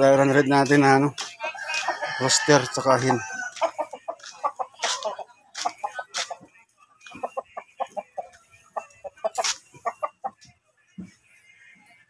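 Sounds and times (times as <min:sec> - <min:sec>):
chickens clucking: 0:00.0 - 0:12.0
scuffing noises: 0:03.3 - 0:06.4, 0:09.4 - 0:09.6.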